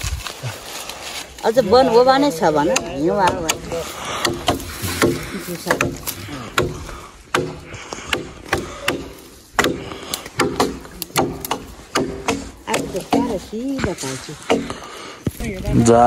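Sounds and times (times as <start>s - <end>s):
people talking: 1.4s - 3.9s, 12.7s - 14.4s, 15.4s - 16.0s
axe chopping wood: 2.6s - 15.4s.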